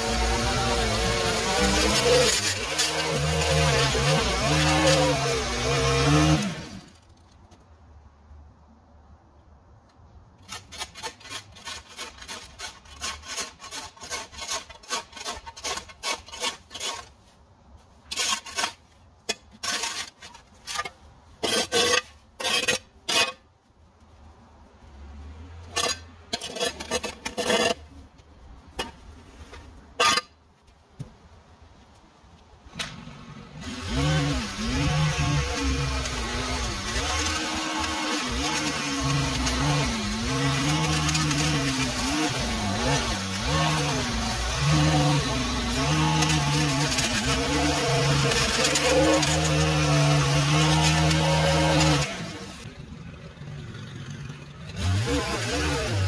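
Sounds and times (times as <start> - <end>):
scraping strokes: 10.4 - 30.8, 33.7 - 52.7.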